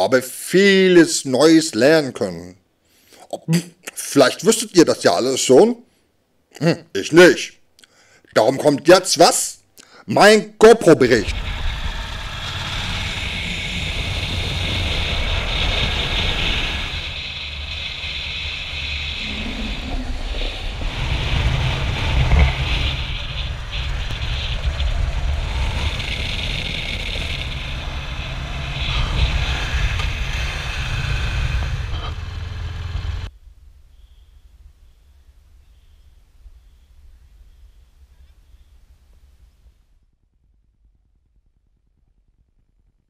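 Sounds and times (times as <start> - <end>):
wind rushing over camera: 11.0 - 39.8
motorcycle engine rumble: 11.2 - 33.8.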